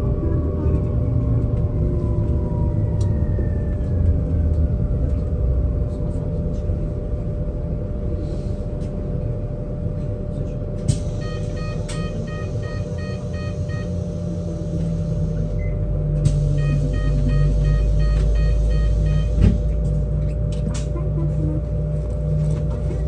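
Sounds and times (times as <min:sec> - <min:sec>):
electric bus hum: 0:00.0 - 0:23.0
road rumble: 0:00.0 - 0:23.0
repeating electronic beep: 0:16.6 - 0:19.3.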